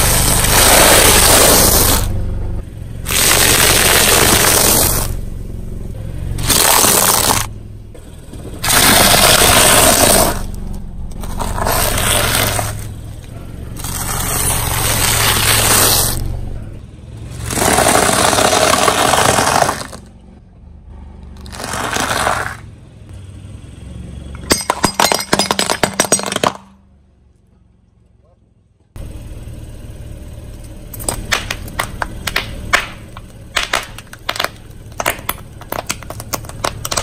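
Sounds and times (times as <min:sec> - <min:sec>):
low engine hum: 0:00.0 - 0:24.8, 0:26.7 - 0:37.0
plastic plates cracking: 0:33.6 - 0:37.0.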